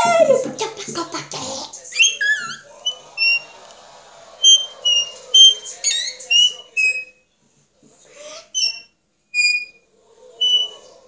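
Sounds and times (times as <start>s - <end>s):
girl's high-pitched squeaks: 0.0s - 0.5s, 2.0s - 2.6s, 4.4s - 7.1s, 8.2s - 9.8s.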